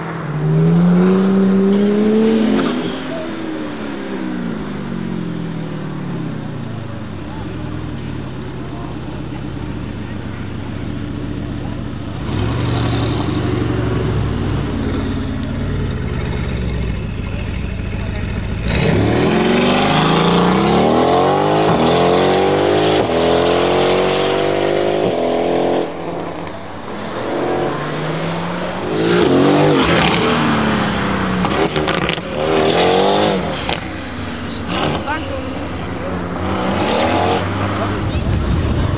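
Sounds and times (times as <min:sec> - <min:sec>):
car exhaust rumbling: 0:00.0 - 0:38.9
sports car engine revving: 0:00.0 - 0:38.9.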